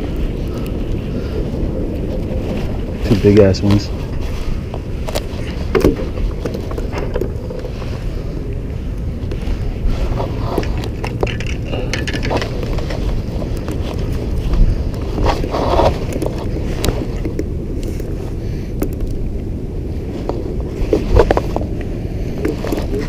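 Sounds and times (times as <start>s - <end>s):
wind buffeting microphone: 0.0s - 23.0s
handling clicks and knocks: 10.5s - 14.0s.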